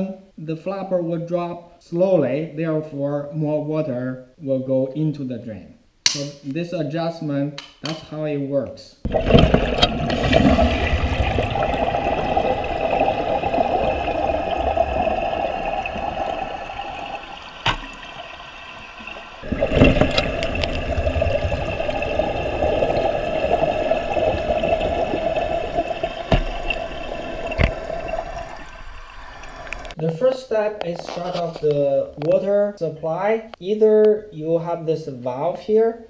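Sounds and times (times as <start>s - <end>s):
toilet water rushing: 9.1s - 30.0s.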